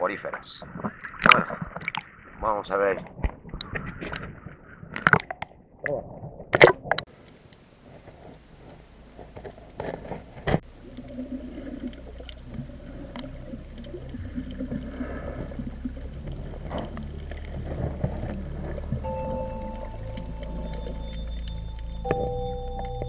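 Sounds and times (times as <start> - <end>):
low steady hum: 7.1 - 23.0
muffled underwater bubbling: 8.4 - 23.0.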